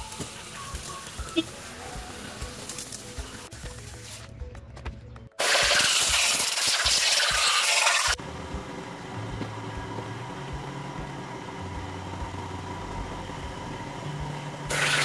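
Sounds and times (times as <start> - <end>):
bass line: 8.2 - 14.7.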